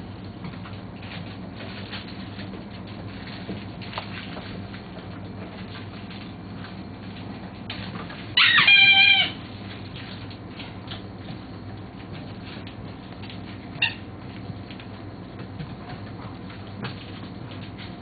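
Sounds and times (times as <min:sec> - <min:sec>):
small paws ticking: 0:00.0 - 0:18.0
puppy yelping: 0:08.4 - 0:09.4, 0:13.8 - 0:14.0.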